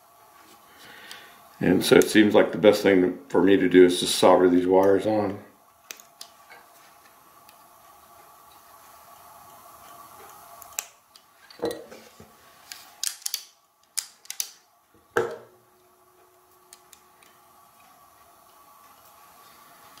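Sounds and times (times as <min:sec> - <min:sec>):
faint steady hum: 0:00.0 - 0:20.0
parts clicking and tapping: 0:12.7 - 0:14.6.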